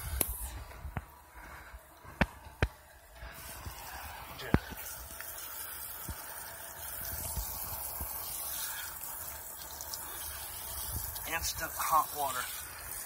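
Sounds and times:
shower water splashing on concrete: 0:03.4 - 0:13.0.

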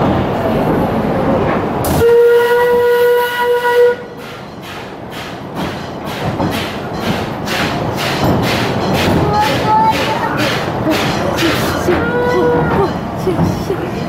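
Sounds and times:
train running rumble: 0:00.0 - 0:14.0
steam locomotive whistle: 0:01.9 - 0:04.2.

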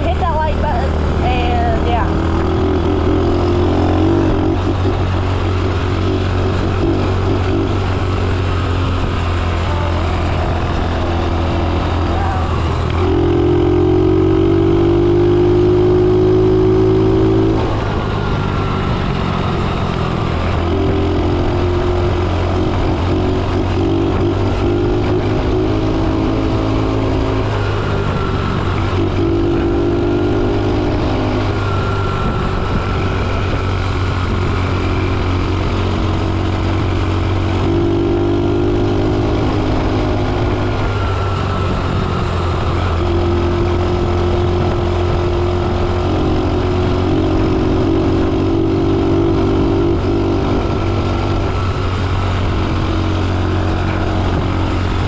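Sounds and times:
vehicle engine deep hum: 0:00.0 - 0:55.0.

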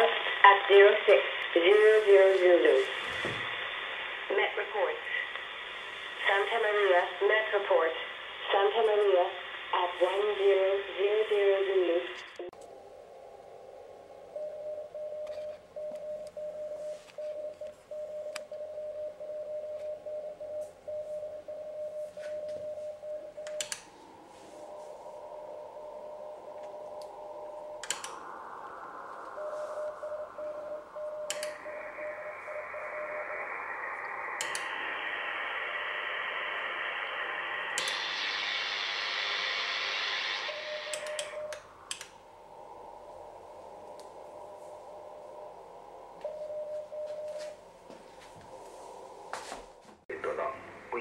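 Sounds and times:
radio receiver hiss: 0:00.0 - 0:12.9, 0:14.2 - 0:49.5
morse code tone: 0:14.4 - 0:23.8, 0:29.4 - 0:34.5, 0:40.5 - 0:41.6, 0:46.2 - 0:47.6.

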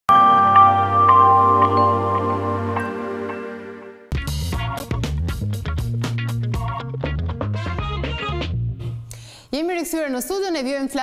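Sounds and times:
theme music with deep bass: 0:00.1 - 0:08.9.

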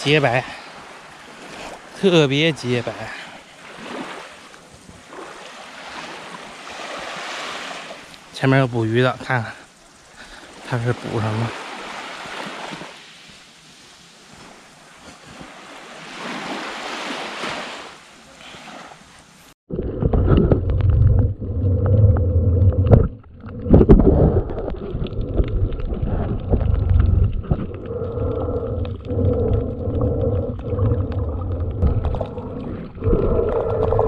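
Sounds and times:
small waves washing on shore: 0:00.0 - 0:20.3, 0:22.0 - 0:34.0
muffled underwater rumble: 0:19.7 - 0:34.0
small underwater clicks: 0:20.0 - 0:34.0.

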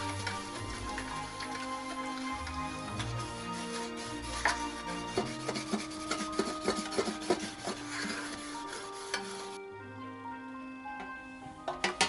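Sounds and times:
spatula scraping metal tin: 0:00.0 - 0:09.6
background music: 0:00.0 - 0:12.0.

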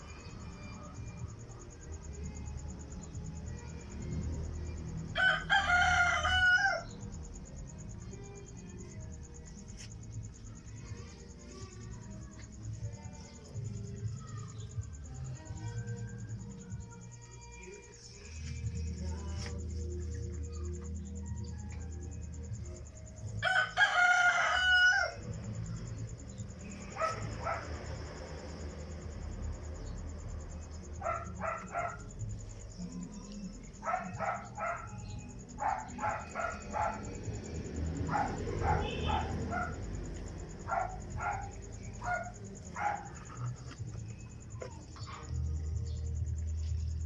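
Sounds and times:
rooster crowing: 0:05.1 - 0:07.1, 0:23.4 - 0:25.4.

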